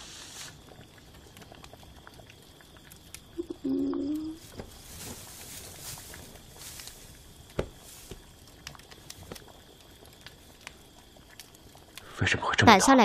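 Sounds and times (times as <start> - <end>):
faint steady high tone: 3.4 - 4.4
rustling of straw and cloth: 4.2 - 10.9.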